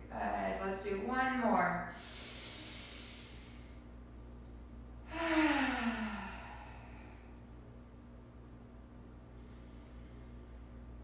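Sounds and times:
woman breathing in through nose: 1.9 - 3.8
woman sighing: 5.1 - 7.1.

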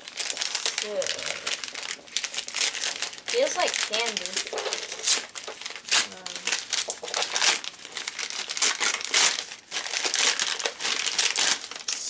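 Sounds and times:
wrapping paper tearing and crumpling: 0.0 - 12.0.

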